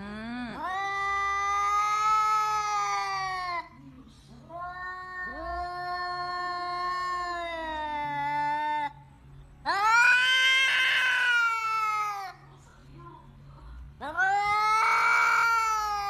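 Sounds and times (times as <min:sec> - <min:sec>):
cat yowling: 0:00.5 - 0:03.7, 0:04.5 - 0:09.0, 0:09.6 - 0:12.4, 0:14.0 - 0:16.0.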